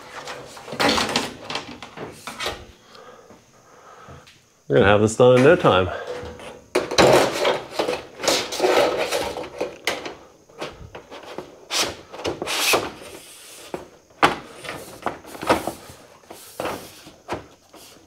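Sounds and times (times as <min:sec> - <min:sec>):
sheet metal scraping: 0:06.0 - 0:09.8.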